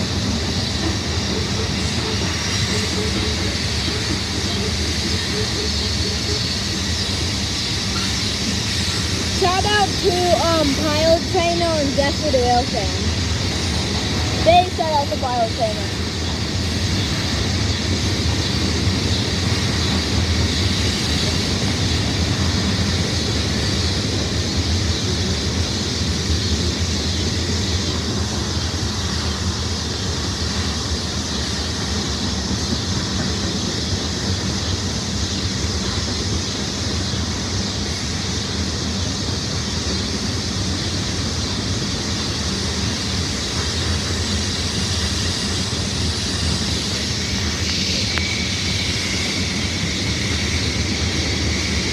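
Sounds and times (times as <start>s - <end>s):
train wheels rumbling on rail: 0.0s - 51.9s.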